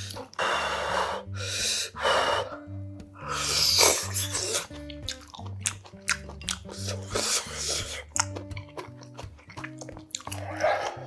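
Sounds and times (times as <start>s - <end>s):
background music with bass line: 0.0s - 11.0s
loud noodle slurping: 3.2s - 4.8s, 6.1s - 8.3s.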